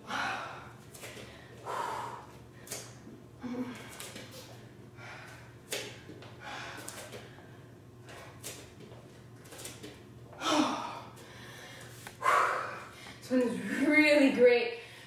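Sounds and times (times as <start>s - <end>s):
woman breathing hard and gasping: 0.0s - 2.8s, 10.4s - 13.8s.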